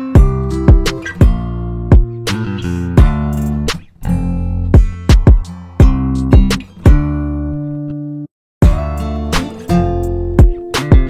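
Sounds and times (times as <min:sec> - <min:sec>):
acoustic guitar strumming: 0:00.0 - 0:11.0.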